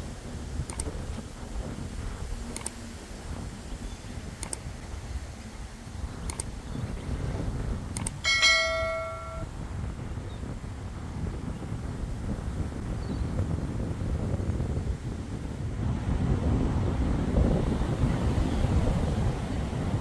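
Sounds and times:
double mouse clicks: 0.7s - 0.9s, 2.5s - 2.8s, 4.4s - 4.6s, 6.3s - 6.5s, 7.9s - 8.2s
notification bell chime: 8.3s - 9.5s.

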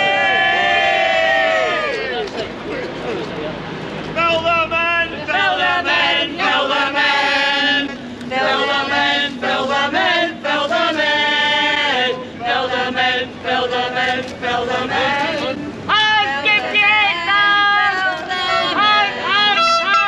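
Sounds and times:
crowd chanting in unison: 5.1s - 20.0s.

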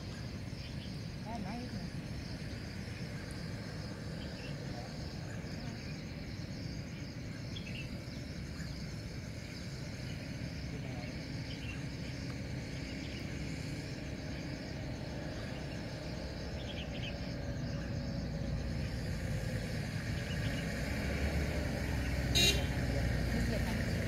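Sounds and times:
vehicle engine rumbling: 0.0s - 24.0s
faint bird chirps: 2.9s - 13.7s.

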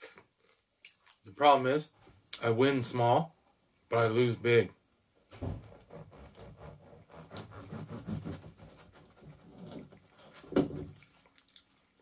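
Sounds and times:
chewing and mouth noises: 0.5s - 1.2s, 10.9s - 12.0s.

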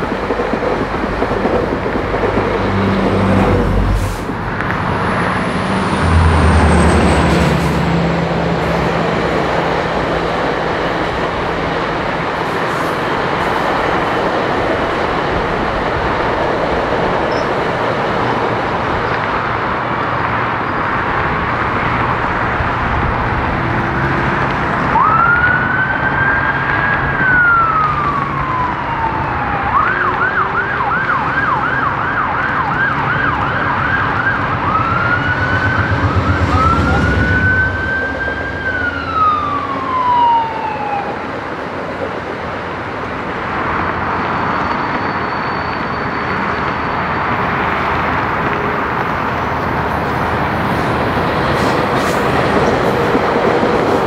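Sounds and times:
emergency vehicle siren wailing: 0.0s - 20.0s, 21.6s - 54.0s
rail noise: 0.0s - 54.0s
road traffic roar: 0.0s - 54.0s
deep engine drone: 2.0s - 10.2s, 33.5s - 40.0s.

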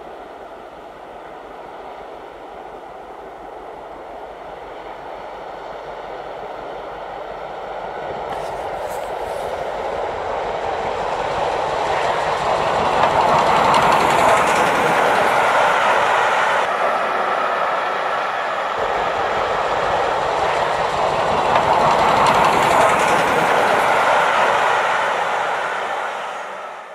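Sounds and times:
steam train passing: 0.0s - 26.9s
wheels clicking over rail joints: 10.8s - 16.2s.

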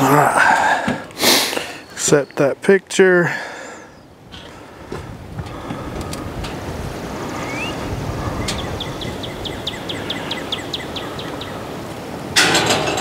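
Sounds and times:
songbird trilling: 7.3s - 11.8s.

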